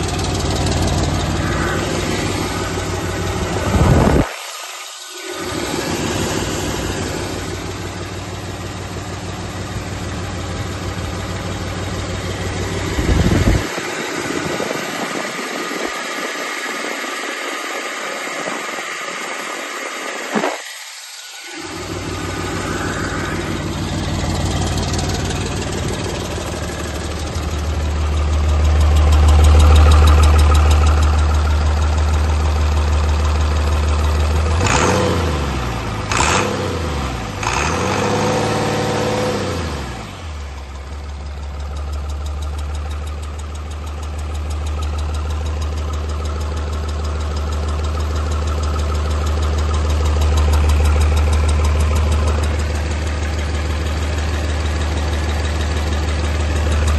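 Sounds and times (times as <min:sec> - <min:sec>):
diesel engine idling and revving: 0:00.0 - 0:04.5, 0:05.2 - 0:56.9.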